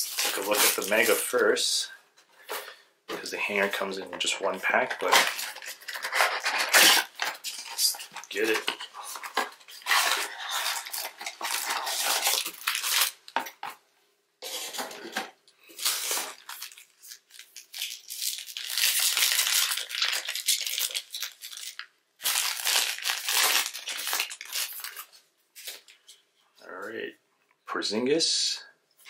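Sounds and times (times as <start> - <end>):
foil wrappers crinkling: 0.0 - 1.4, 4.2 - 13.7, 14.4 - 26.1.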